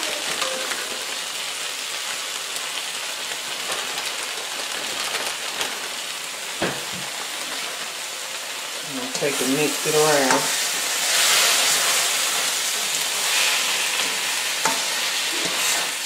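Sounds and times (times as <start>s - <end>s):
food sizzling in frying pan: 0.0s - 16.0s.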